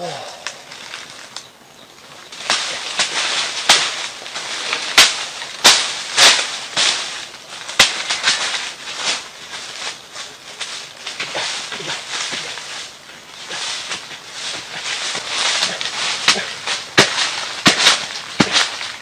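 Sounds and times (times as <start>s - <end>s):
dry leaves crackling and rustling: 0.0s - 19.0s
stick striking soil: 2.4s - 9.8s, 13.4s - 19.0s.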